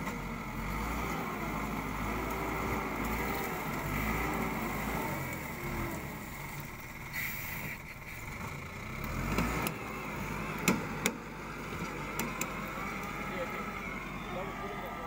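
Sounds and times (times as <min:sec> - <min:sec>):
wheel loader diesel engine: 0:00.0 - 0:15.0.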